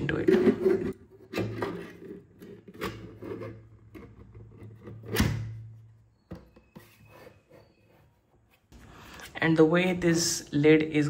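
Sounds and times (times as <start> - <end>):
plastic scraping: 0.0 - 5.3.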